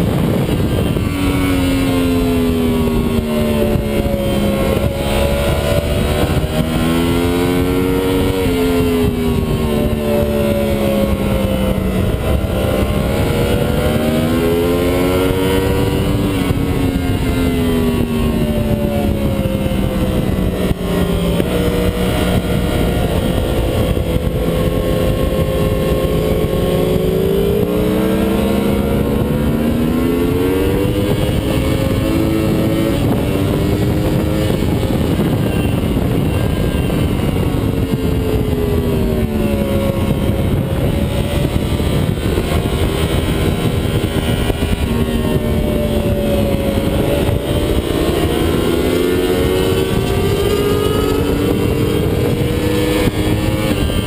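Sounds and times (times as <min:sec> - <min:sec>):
motorcycle engine at speed: 0:00.0 - 0:54.0
wind rushing: 0:00.0 - 0:54.0.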